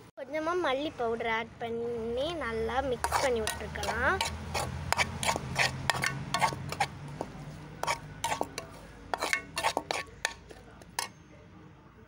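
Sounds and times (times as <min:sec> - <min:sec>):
spoon scraping metal pan: 0:03.0 - 0:11.2.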